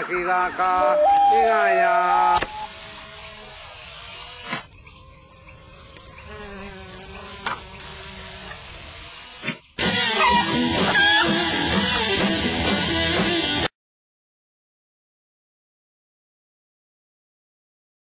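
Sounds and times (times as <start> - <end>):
insects buzzing: 1.4 - 10.3
short click: 2.4 - 2.6.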